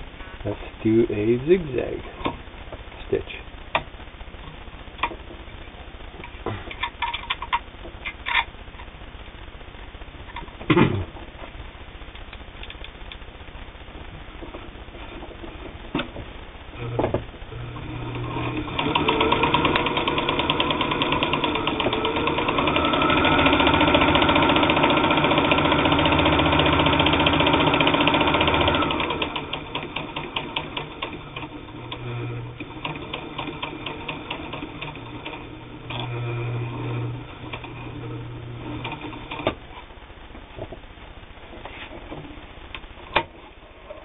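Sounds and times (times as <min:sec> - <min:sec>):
sewing machine motor hum: 0:16.8 - 0:39.6
sewing machine stitching: 0:17.8 - 0:39.6.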